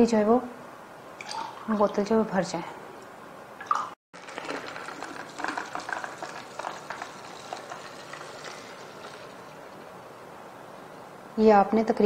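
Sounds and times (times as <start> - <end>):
milk gurgling into a bottle: 4.2 - 9.6.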